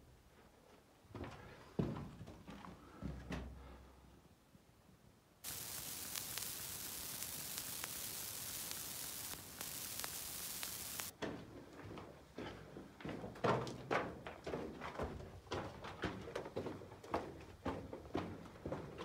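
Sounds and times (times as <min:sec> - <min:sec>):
static hiss with crackles: 0:05.4 - 0:11.1.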